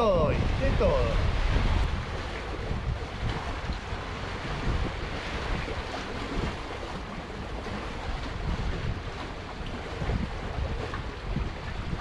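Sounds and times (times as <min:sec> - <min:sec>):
river water washing against pier: 0:00.0 - 0:12.0
wind rumbling on microphone: 0:00.0 - 0:12.0.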